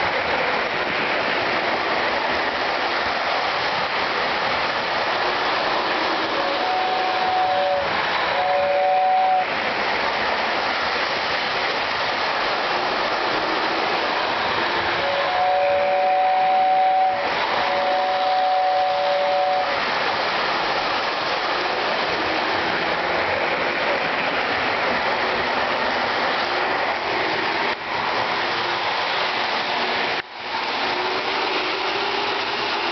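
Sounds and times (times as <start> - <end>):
model train rattling rumble: 0.0 - 32.9
two-note train whistle: 5.8 - 9.5, 15.0 - 19.8.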